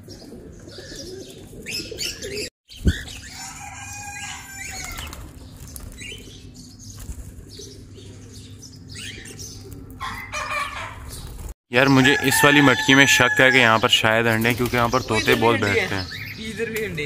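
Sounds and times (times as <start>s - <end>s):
birds chirping: 0.0s - 17.0s
wings flapping: 4.5s - 7.7s, 9.2s - 11.6s, 14.3s - 15.8s.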